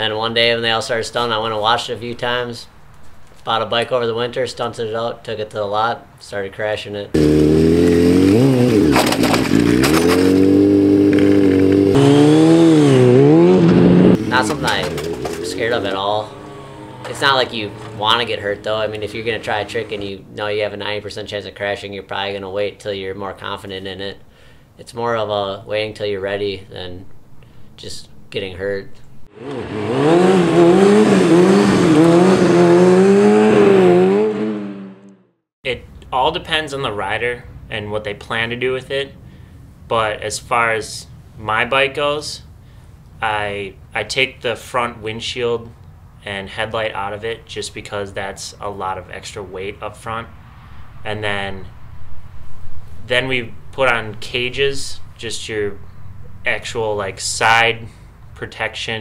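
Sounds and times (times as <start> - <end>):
motorcycle engine at high revs: 7.2 - 20.0, 29.3 - 35.1
motorcycle scraping on ground: 7.2 - 20.3, 29.3 - 35.1.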